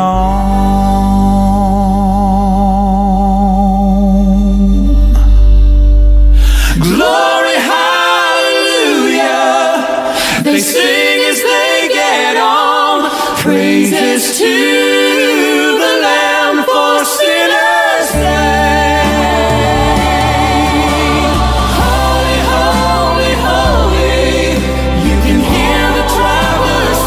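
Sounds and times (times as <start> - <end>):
voices singing in harmony: 6.7 - 27.0
band chord with heavy bass: 18.2 - 27.0.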